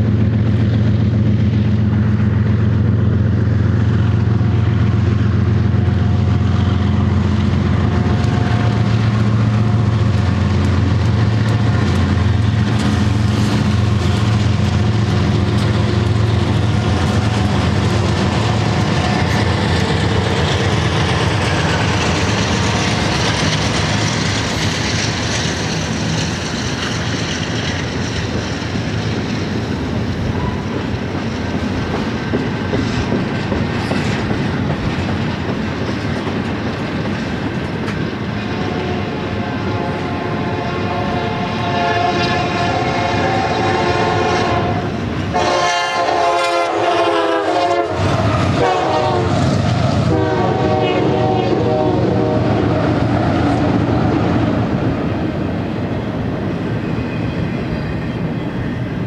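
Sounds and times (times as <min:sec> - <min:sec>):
train wheels rumbling and clattering: 0:00.0 - 0:59.0
train horn chord: 0:38.6 - 0:48.0, 0:48.6 - 0:49.4, 0:50.1 - 0:52.7.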